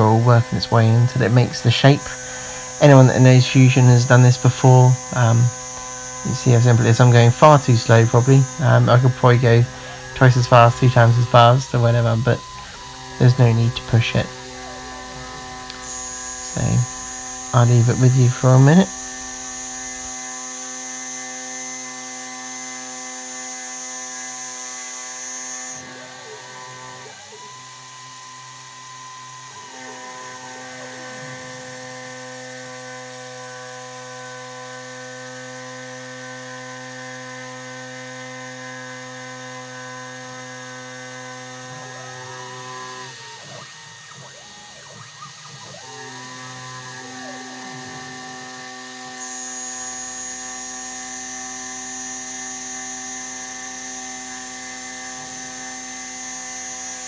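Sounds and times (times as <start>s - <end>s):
gliding machine tones: 0.0s - 20.2s
milling machine cutting metal: 0.0s - 57.0s.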